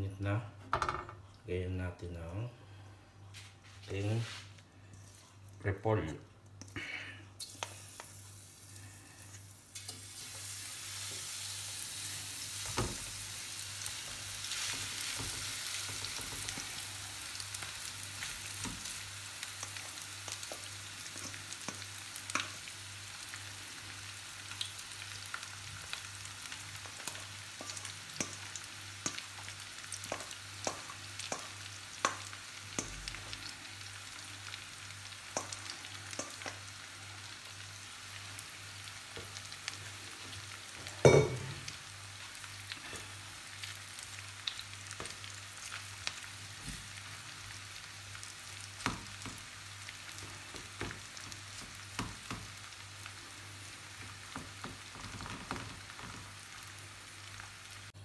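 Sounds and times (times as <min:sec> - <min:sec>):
vegetables sizzling in oil: 0:07.4 - 0:58.0
oil pops and crackles: 0:54.3 - 0:56.4.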